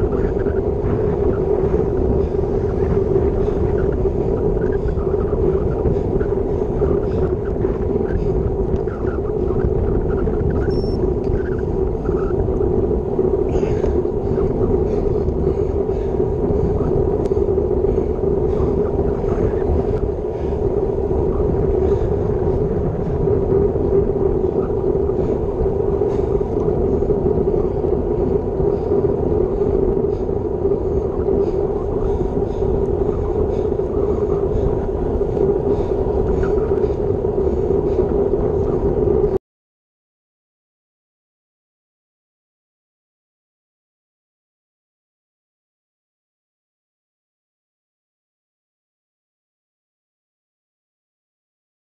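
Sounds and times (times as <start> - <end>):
road noise: 0.0 - 39.3
constant low drone: 0.0 - 39.4
wind rushing: 0.0 - 39.4.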